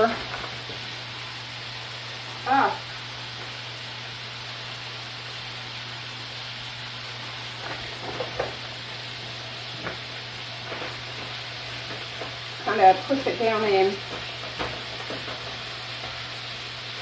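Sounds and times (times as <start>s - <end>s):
meat sizzling in a frying pan: 0.0s - 17.0s
utensil scraping in a pan: 7.1s - 17.0s.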